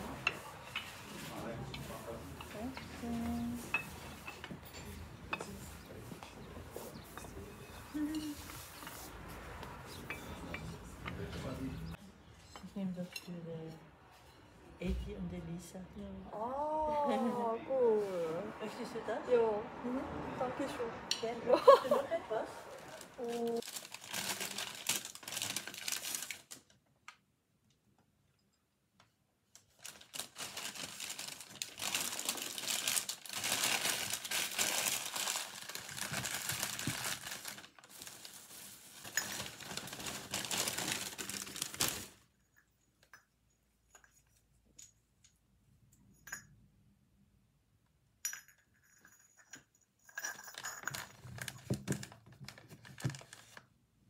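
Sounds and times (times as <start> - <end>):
ceramic cups clinking on table: 3.6 - 5.8, 10.0 - 10.8
paper and plastic bag rustling: 22.7 - 26.7, 29.7 - 42.2, 51.0 - 53.7.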